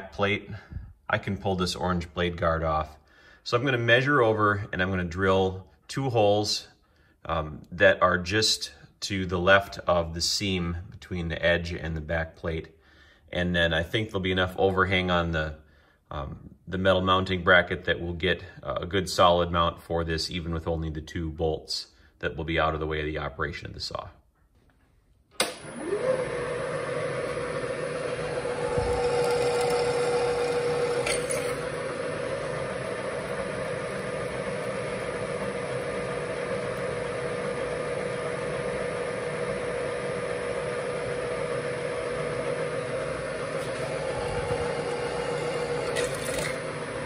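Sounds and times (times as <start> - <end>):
drill boring into steel: 25.4 - 47.0
milling machine spindle whining: 25.5 - 47.0.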